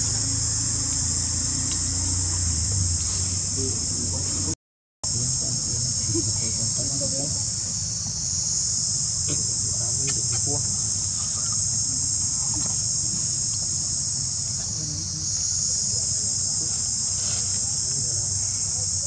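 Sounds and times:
high-pitched insect chorus: 0:00.0 - 0:19.0
low steady rumble: 0:00.0 - 0:19.0.

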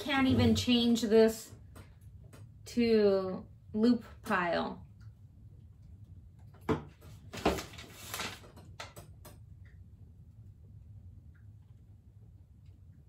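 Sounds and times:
paper crinkling: 0:07.1 - 0:08.8.

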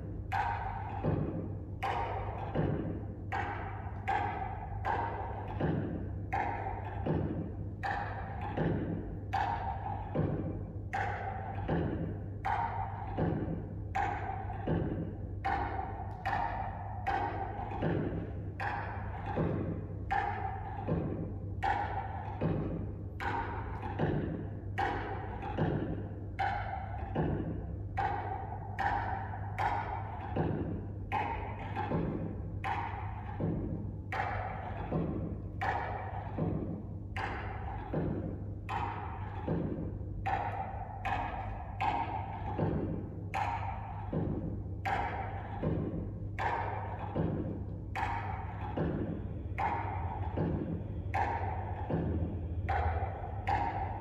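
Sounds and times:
hollow drum-like knocks: 0:00.0 - 0:54.0.

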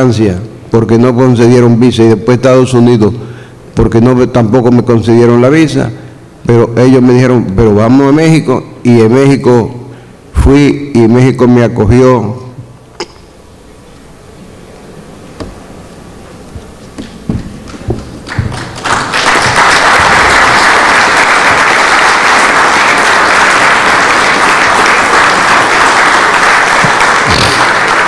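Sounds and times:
audience applause: 0:17.7 - 0:28.0.

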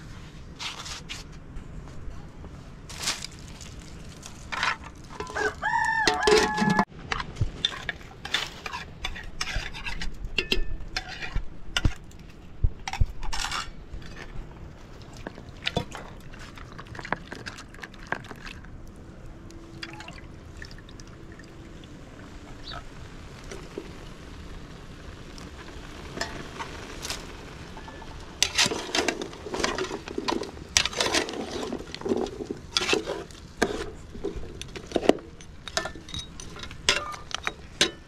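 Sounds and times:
rooster crowing: 0:05.2 - 0:06.9
dishes and pot clinking: 0:28.4 - 0:38.0.

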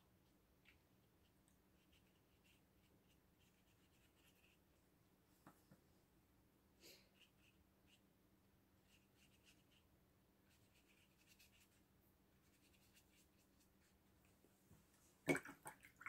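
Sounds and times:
paintbrush strokes on paper: 0:00.6 - 0:04.8, 0:06.8 - 0:08.1, 0:08.8 - 0:14.1.

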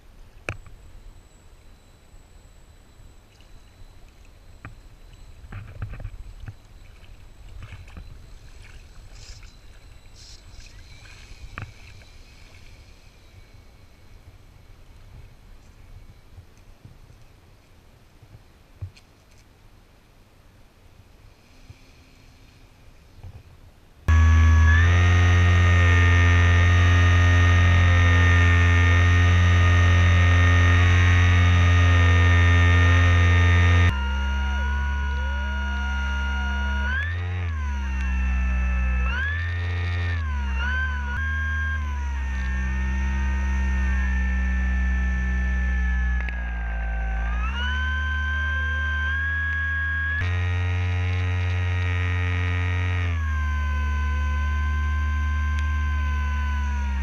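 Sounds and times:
water splashing around floats: 0:06.1 - 0:12.8
low rumble: 0:24.1 - 0:57.0
model airplane motor humming: 0:24.1 - 0:57.0.

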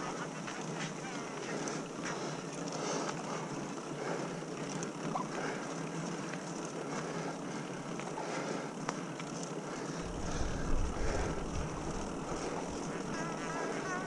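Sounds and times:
bike tyres hissing on wet pavement: 0:00.0 - 0:14.0
wind rumble on microphone: 0:10.1 - 0:13.6.

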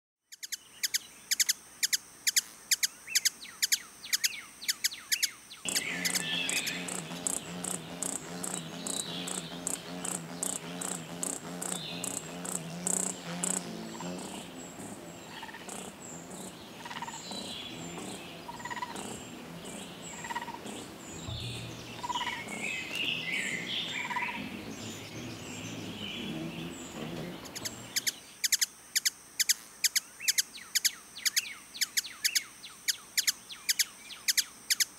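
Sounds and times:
hummingbird ticking calls: 0:00.3 - 0:34.9
scattered chirps: 0:04.7 - 0:31.4
low steady hum: 0:05.7 - 0:28.1.

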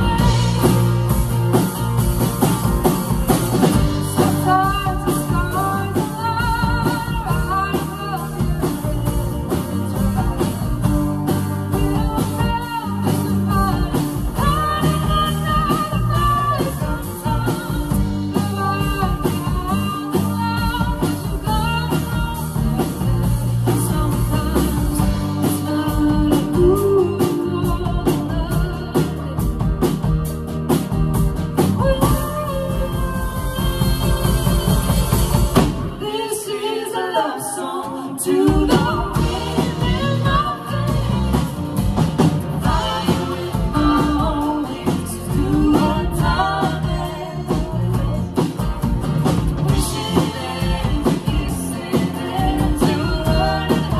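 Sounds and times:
woman singing: 0:00.0 - 0:30.3, 0:31.6 - 0:41.9, 0:42.5 - 0:53.9
live rock band playing: 0:00.0 - 0:53.9.

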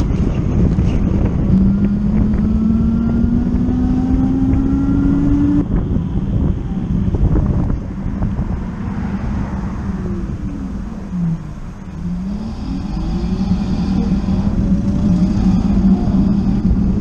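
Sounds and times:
wind and road rumble: 0:00.0 - 0:17.0
electric motorcycle motor whining: 0:11.9 - 0:17.0.

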